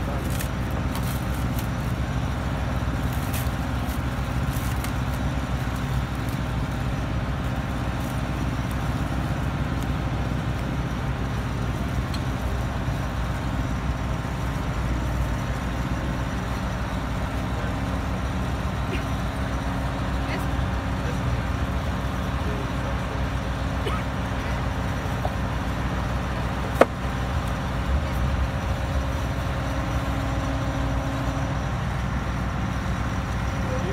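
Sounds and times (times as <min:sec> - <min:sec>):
drill rig engine droning: 0:00.0 - 0:33.9
plastic film crinkling: 0:00.1 - 0:02.0, 0:02.9 - 0:09.9.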